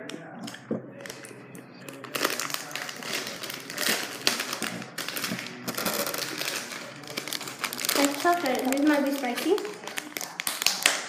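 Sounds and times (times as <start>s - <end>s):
candy wrapper crinkling: 0.0s - 11.0s.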